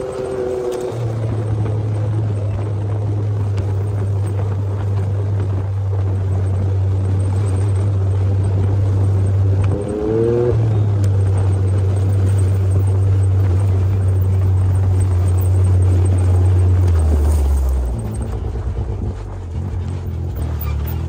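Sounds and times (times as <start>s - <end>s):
engine droning without muffler: 0.0s - 21.0s.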